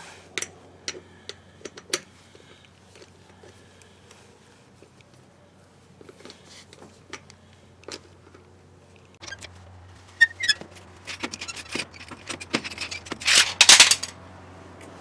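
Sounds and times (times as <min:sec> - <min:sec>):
short squeak: 0:10.2 - 0:10.6.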